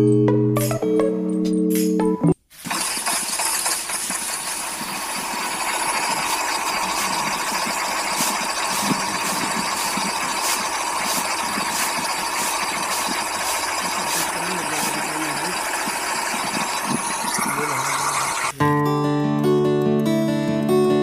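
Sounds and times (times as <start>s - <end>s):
small motor whirring: 2.7s - 18.6s.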